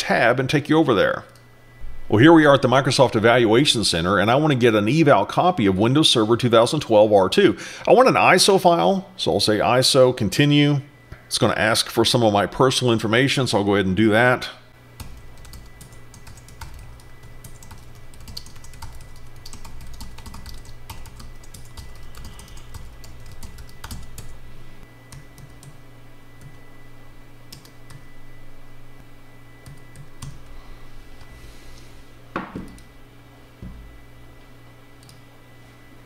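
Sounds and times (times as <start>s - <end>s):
faint steady hum: 0.0s - 36.0s
typing on computer keyboard: 15.0s - 24.3s.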